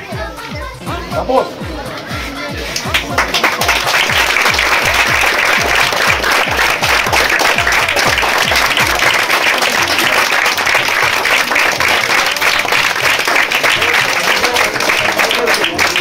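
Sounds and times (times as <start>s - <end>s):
music with low drum beat: 0.0s - 9.3s
crowd applauding: 2.7s - 16.0s.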